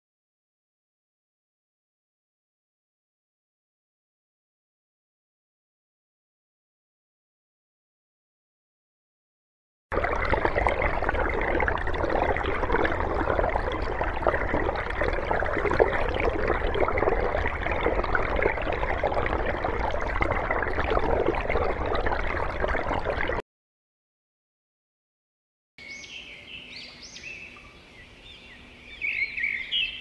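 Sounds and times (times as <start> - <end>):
bubbling gurgling water: 9.9 - 23.4.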